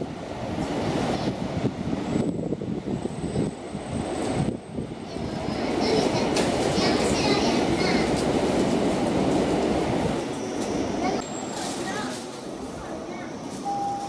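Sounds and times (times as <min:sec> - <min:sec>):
train wheels and motors rumbling: 0:00.0 - 0:14.0
rail squealing: 0:10.2 - 0:14.0.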